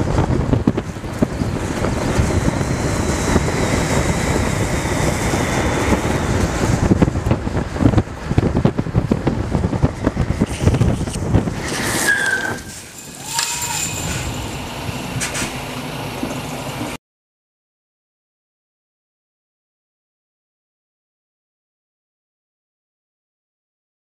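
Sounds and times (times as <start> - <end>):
wheels rolling on rough asphalt: 0.0 - 17.0
wind rushing over microphone: 0.0 - 17.0
wheels squealing: 9.8 - 17.0.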